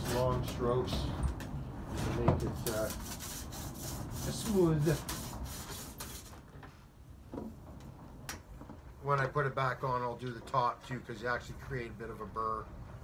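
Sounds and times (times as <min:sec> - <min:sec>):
hand file filing metal: 0:02.6 - 0:06.3.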